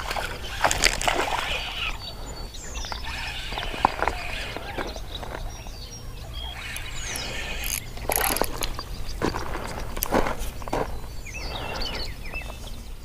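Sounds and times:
fish scraping and knocking on rocks: 0:00.0 - 0:05.7, 0:07.1 - 0:12.7
fishing reel being cranked: 0:02.9 - 0:05.4, 0:06.6 - 0:08.8.

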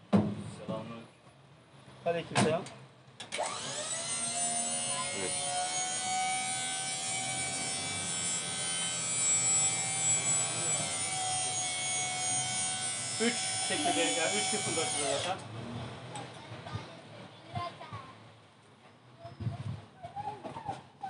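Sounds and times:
electric pump motor whine: 0:03.3 - 0:15.4.

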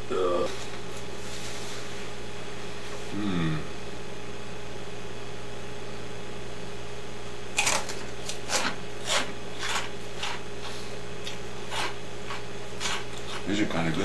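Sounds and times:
steady low hum: 0:00.0 - 0:14.0
snack crunching and chewing: 0:07.5 - 0:13.5.

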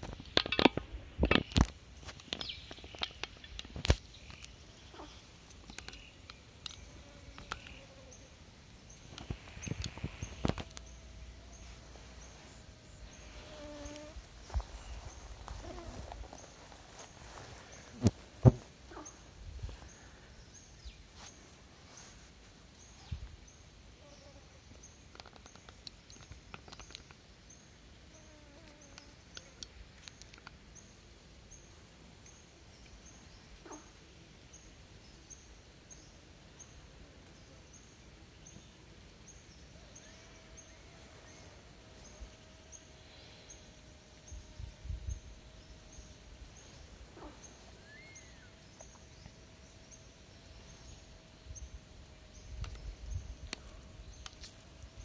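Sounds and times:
birds calling: 0:00.0 - 0:22.2, 0:32.3 - 0:36.8, 0:38.4 - 0:55.0.

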